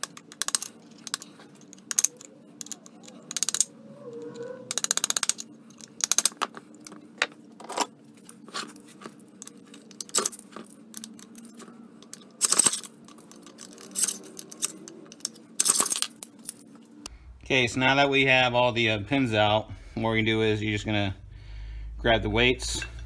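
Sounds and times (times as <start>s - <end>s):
metal parts clattering: 0.0s - 3.8s, 9.3s - 16.7s
metal parts clinking: 0.0s - 7.0s, 9.3s - 16.7s.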